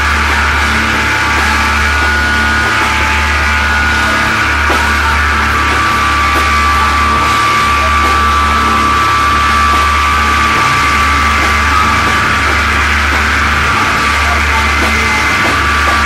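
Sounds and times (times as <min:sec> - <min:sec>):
psychedelic rock music: 0:00.0 - 0:16.0.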